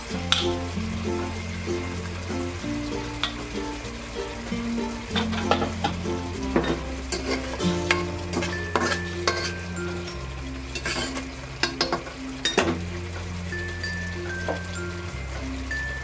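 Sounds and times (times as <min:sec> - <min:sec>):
sauce sizzling: 0:00.0 - 0:16.0
soft background music: 0:00.0 - 0:16.0
spatula scraping a pan: 0:05.1 - 0:12.6.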